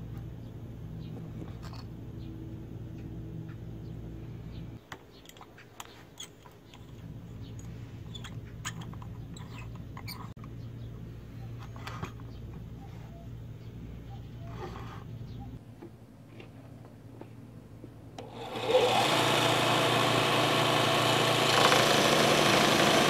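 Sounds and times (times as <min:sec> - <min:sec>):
steady low hum: 0:00.0 - 0:04.9, 0:06.1 - 0:18.3.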